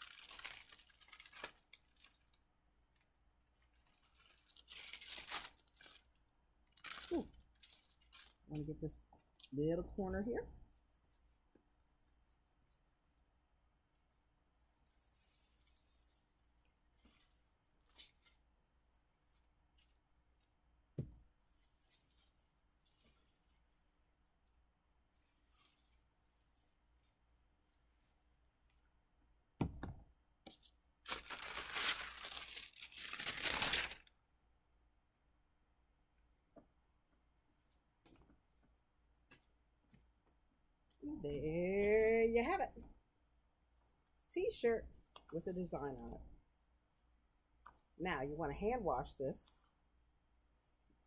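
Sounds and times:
parchment paper rustling and crinkling: 0.0s - 9.5s, 13.9s - 23.7s, 25.2s - 27.2s, 30.5s - 34.1s.

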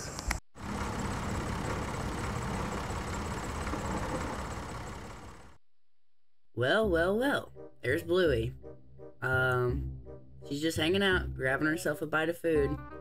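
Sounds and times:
tractor engine running: 0.1s - 5.6s.

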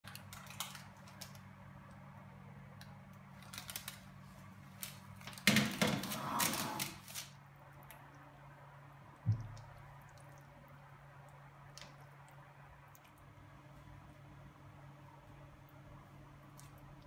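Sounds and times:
low steady hum: 0.0s - 17.0s
rustling and scraping: 3.4s - 7.4s.

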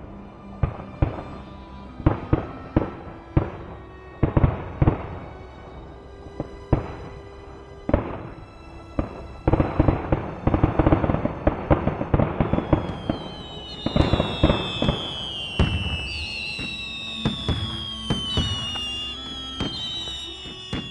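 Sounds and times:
firework whistles falling in pitch: 0.5s - 5.2s, 7.9s - 20.9s
firework cracks and pops: 0.6s - 20.9s.

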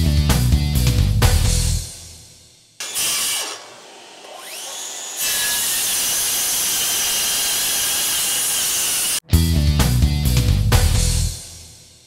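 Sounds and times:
circular saw whining: 2.8s - 9.2s
saw blade cutting board: 2.8s - 9.2s.

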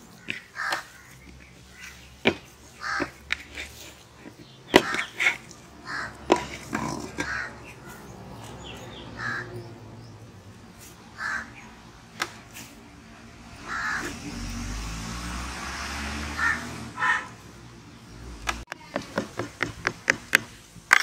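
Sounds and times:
bird calls: 0.0s - 14.5s.

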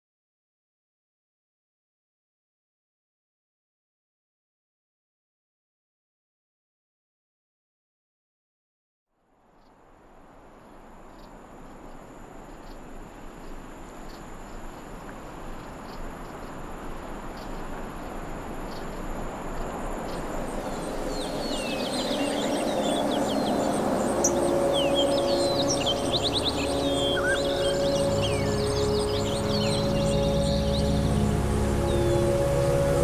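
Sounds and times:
steady high whine: 9.9s - 33.0s
small birds twittering: 11.1s - 33.0s
low musical tone: 20.1s - 33.0s.

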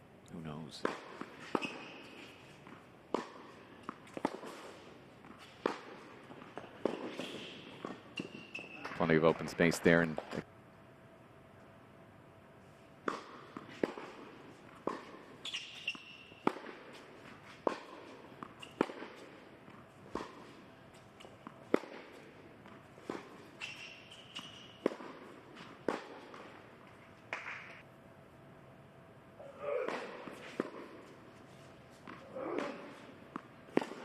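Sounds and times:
racquet strikes: 0.7s - 10.4s, 13.0s - 27.8s, 29.4s - 34.0s
tennis ball bounces: 0.8s - 9.2s, 13.0s - 27.8s, 29.7s - 31.2s, 31.9s - 34.0s
sneaker squeaks: 1.1s - 3.3s, 3.9s - 9.2s, 14.8s - 19.3s, 23.0s - 26.4s.

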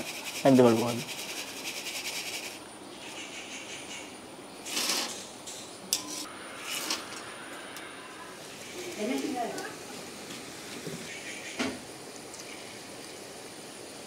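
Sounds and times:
oil sizzling: 4.6s - 14.0s.

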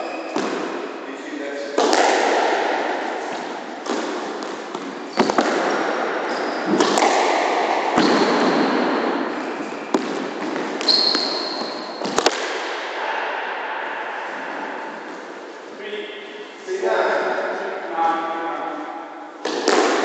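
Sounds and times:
sneakers squeaking on wooden floor: 0.0s - 0.7s, 3.3s - 7.1s, 7.9s - 12.3s
squash ball knocks: 1.8s - 6.1s, 6.7s - 8.8s, 19.4s - 20.0s.

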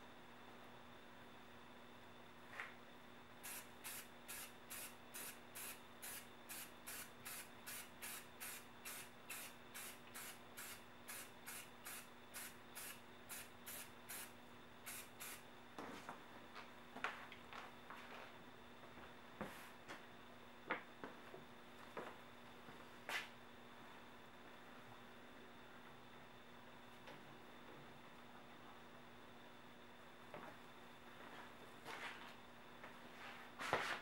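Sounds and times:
spray can hissing bursts: 3.4s - 14.3s, 14.9s - 15.4s.

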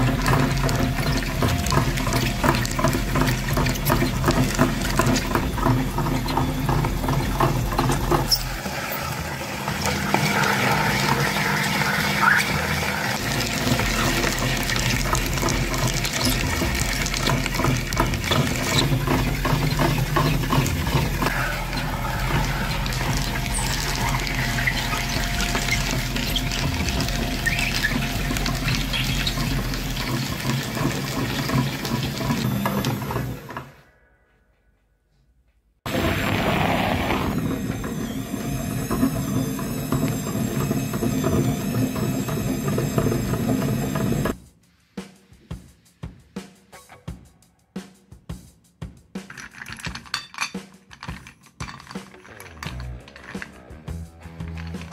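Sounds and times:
eggshells crackling and crunching: 0.0s - 8.6s, 13.1s - 32.4s
meat grinder motor hum: 0.0s - 33.7s, 35.9s - 44.4s.

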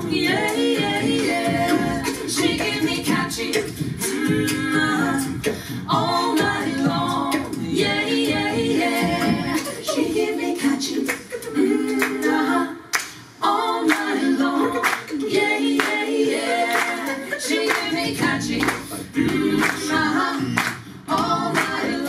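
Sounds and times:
a cappella quartet singing in harmony: 0.0s - 22.0s
hand claps: 11.0s - 11.3s, 12.0s - 12.2s, 12.9s - 13.2s, 13.9s - 14.2s, 14.8s - 15.2s, 15.8s - 16.0s, 16.7s - 17.0s, 17.6s - 22.0s.

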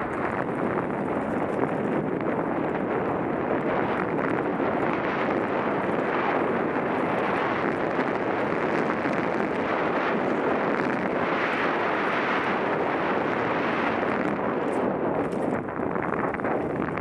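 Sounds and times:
bike tyres on dirt trail: 0.0s - 17.0s
wind buffeting microphone: 0.0s - 17.0s.

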